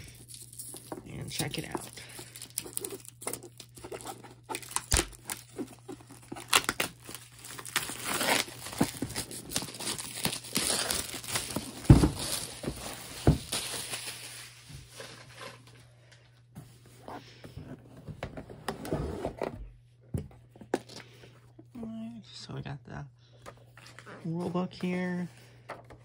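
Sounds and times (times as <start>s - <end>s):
plastic wrap tearing and crinkling: 0.0s - 15.8s
cardboard box thumps: 11.5s - 13.7s.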